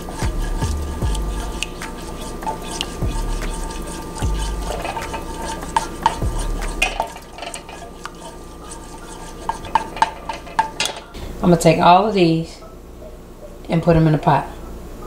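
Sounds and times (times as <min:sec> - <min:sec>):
spatula stirring in saucepan: 0:00.0 - 0:11.2
low thumps: 0:03.0 - 0:04.8.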